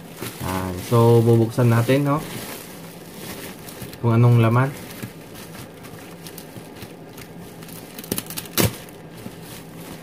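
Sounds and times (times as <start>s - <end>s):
plastic mailer bag crinkling: 0.0s - 10.0s
plastic bag snap: 4.9s - 9.1s.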